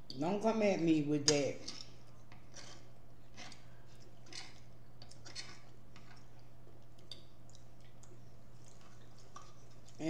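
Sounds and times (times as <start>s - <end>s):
steady low hum: 0.0s - 10.0s
chewing smacks: 2.5s - 10.0s.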